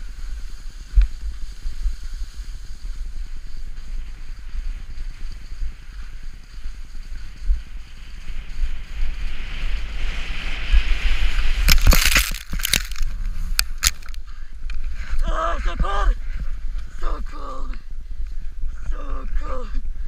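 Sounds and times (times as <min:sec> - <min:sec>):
skis sliding on snow: 0:00.0 - 0:15.2
wind buffeting microphone: 0:00.0 - 0:20.0.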